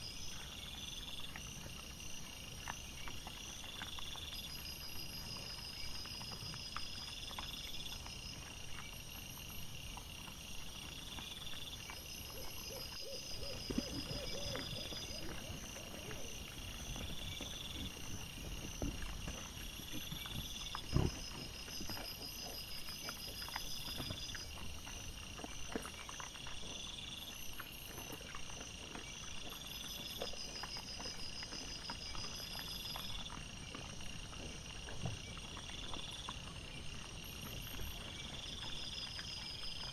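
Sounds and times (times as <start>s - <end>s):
night insects chirping: 0.0s - 39.9s
low animal calls: 12.2s - 22.6s.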